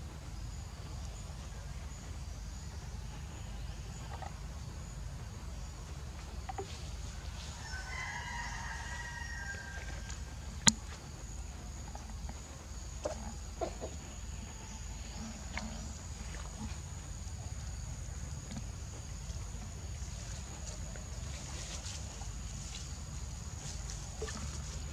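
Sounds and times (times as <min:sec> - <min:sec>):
high insect drone: 0:00.0 - 0:24.9
rooster crowing: 0:07.6 - 0:10.2.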